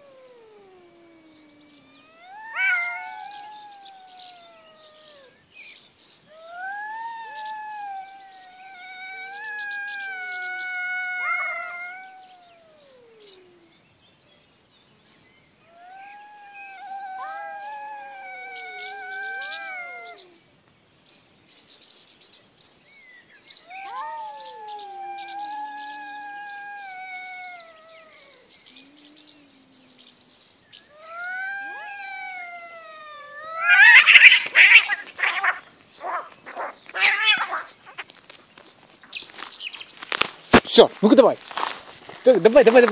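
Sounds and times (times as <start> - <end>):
cat growling: 0.0 - 5.4, 6.3 - 13.8, 15.6 - 20.5, 23.6 - 38.0
cats screeching while fighting: 0.0 - 5.4, 6.3 - 13.7, 15.7 - 20.4, 23.6 - 30.2, 30.9 - 38.0
cats yowling: 0.0 - 5.5, 6.2 - 13.8, 15.6 - 20.5, 23.5 - 38.1.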